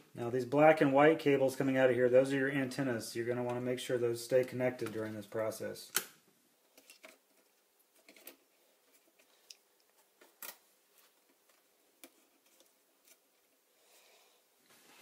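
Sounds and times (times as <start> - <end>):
faint clicks and taps of small parts: 5.9 - 13.6.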